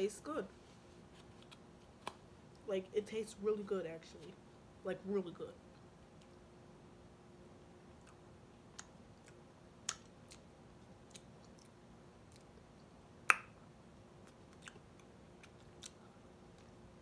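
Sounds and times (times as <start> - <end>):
faint steady hum: 0.0 - 17.0
person chewing crunchy food: 8.0 - 12.7, 14.2 - 16.8.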